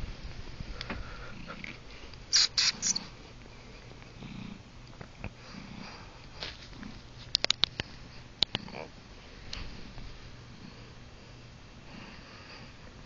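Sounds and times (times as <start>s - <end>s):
short noisy bursts: 2.3s - 3.1s.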